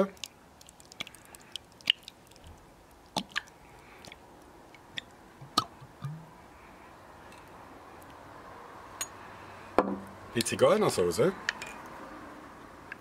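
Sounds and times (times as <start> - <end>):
sharp little clicks and pops: 0.0 - 6.2
salsa squelching from bottle: 0.1 - 6.3.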